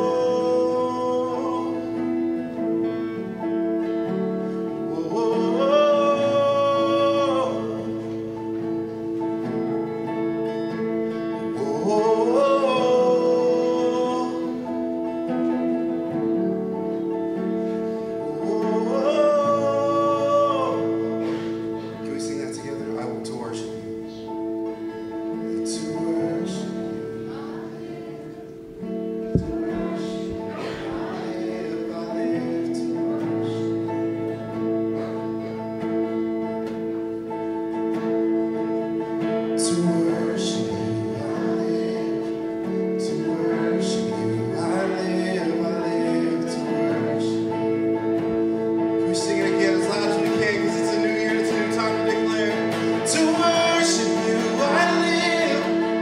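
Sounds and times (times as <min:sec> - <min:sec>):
voices singing: 0:00.0 - 0:02.3, 0:25.5 - 0:33.8
guitar: 0:00.0 - 0:56.0
held chords: 0:00.0 - 0:56.0.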